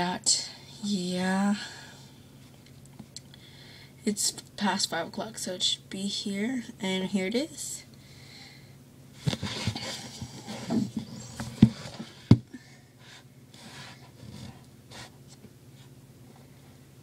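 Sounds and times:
device handling rubbing and rustling: 9.2s - 12.4s.

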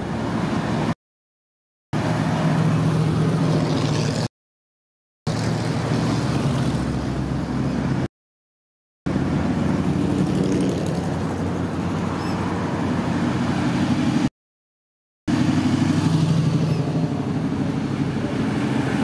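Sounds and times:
road noise: 0.0s - 1.0s, 1.9s - 4.3s, 5.2s - 8.1s, 9.1s - 14.3s, 15.3s - 19.0s
car engines rumbling: 2.0s - 4.3s, 5.3s - 8.1s, 9.1s - 14.3s, 15.3s - 19.0s.

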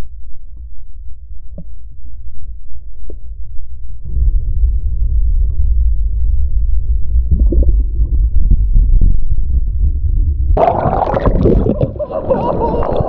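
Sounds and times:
underwater whitewater rumble: 4.1s - 13.0s
bubbling pops: 10.6s - 13.0s.

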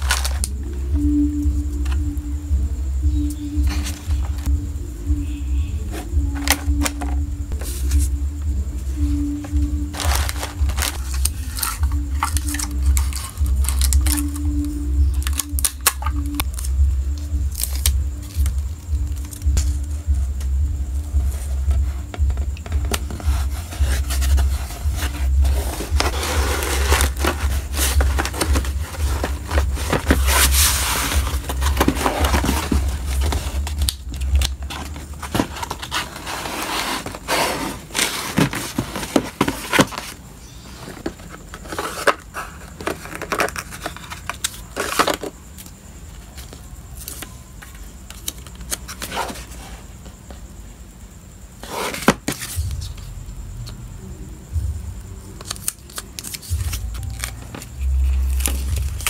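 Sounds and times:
cardboard and paper crackling: 22.8s - 40.2s.

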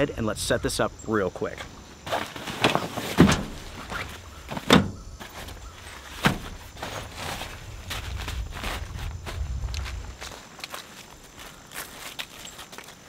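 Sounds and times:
gear thudding and rustling: 1.5s - 10.3s.

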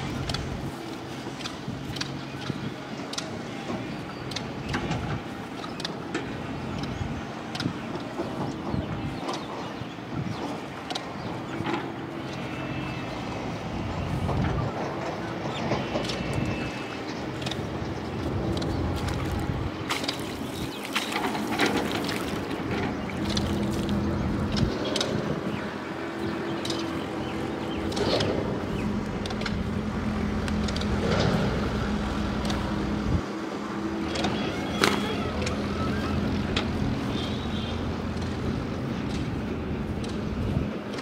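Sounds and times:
engine drone: 0.0s - 41.0s
sharp clicks: 15.1s - 32.8s.

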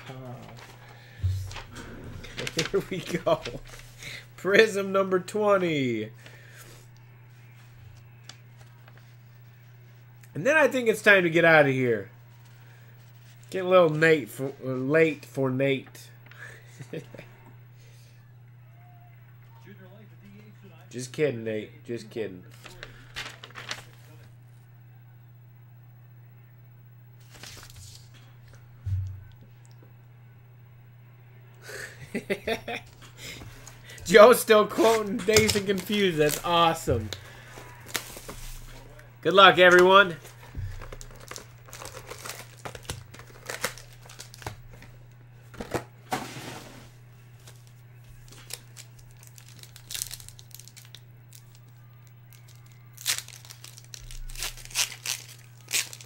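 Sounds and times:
paper rustling: 0.0s - 4.2s, 7.4s - 10.0s, 22.5s - 24.3s, 27.2s - 28.2s, 32.8s - 39.0s, 39.6s - 51.6s, 52.3s - 56.0s
low hum: 0.0s - 4.4s, 22.7s - 39.2s
foil wrappers crinkling: 0.0s - 4.7s, 22.5s - 24.3s, 27.2s - 28.2s, 32.2s - 45.8s, 47.3s - 56.0s
steady low hum: 0.0s - 56.0s
pack torn open: 40.8s - 44.8s, 48.3s - 51.6s, 52.3s - 56.0s.

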